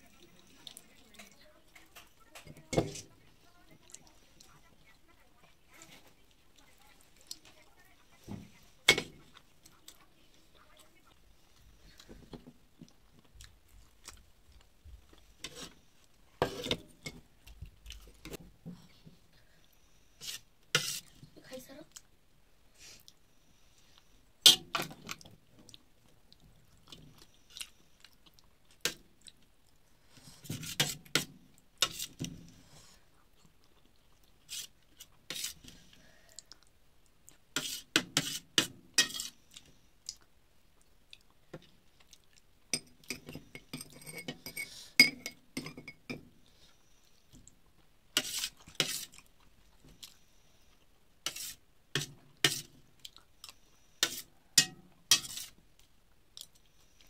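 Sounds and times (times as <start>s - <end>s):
spoon scraping steel plate: 20.2s - 21.1s, 30.5s - 32.2s, 35.3s - 35.6s, 37.6s - 39.4s, 43.1s - 46.0s, 48.2s - 49.2s, 51.2s - 52.7s, 54.0s - 55.6s
chewing and mouth sounds: 25.0s - 29.8s, 39.5s - 42.5s, 53.0s - 53.6s.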